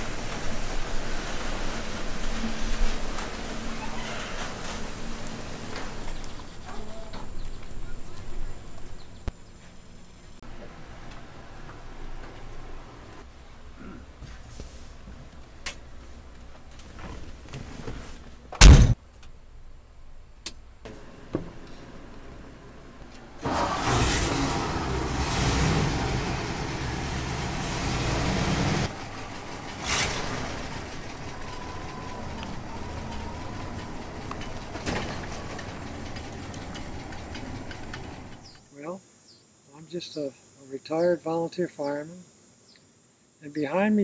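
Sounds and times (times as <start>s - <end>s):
truck engine running: 0.0s - 8.2s, 23.3s - 38.6s
sharp knock: 18.6s - 19.0s
truck door slamming: 18.6s - 19.0s.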